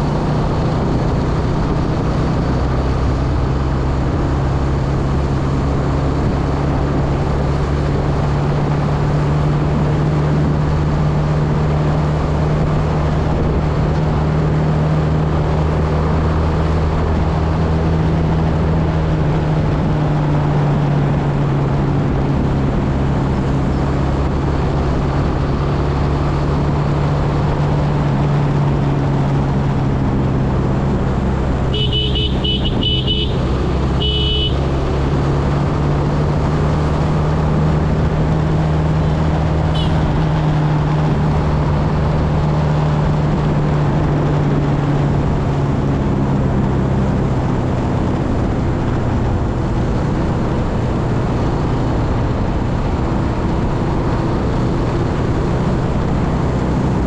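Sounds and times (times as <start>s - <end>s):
road and wind noise: 0.0s - 57.0s
motorcycle engine running: 26.2s - 45.2s.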